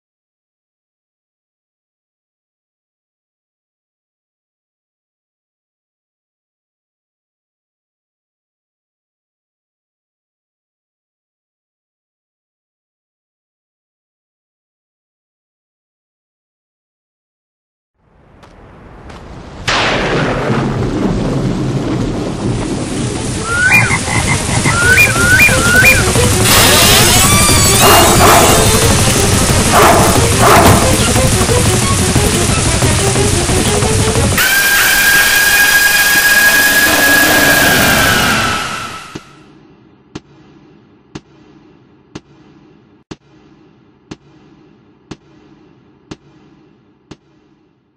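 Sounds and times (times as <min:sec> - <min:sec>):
steady rain-like noise: 0:18.0 - 0:39.2
frogs croaking: 0:23.4 - 0:26.0.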